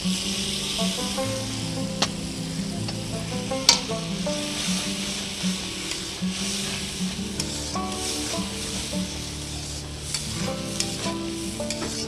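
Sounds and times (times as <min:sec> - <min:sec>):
masala sizzling in a pan: 0:00.0 - 0:12.0
soft background music: 0:00.0 - 0:12.0
metal spatula scraping pan: 0:03.6 - 0:12.0.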